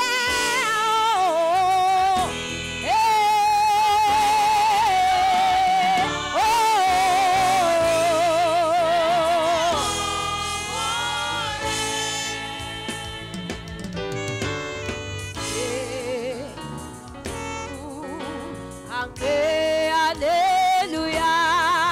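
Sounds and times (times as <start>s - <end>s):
woman singing with vibrato: 0.0s - 14.4s, 15.2s - 21.9s
instrumental backing: 0.0s - 21.9s
choir singing: 4.0s - 14.3s.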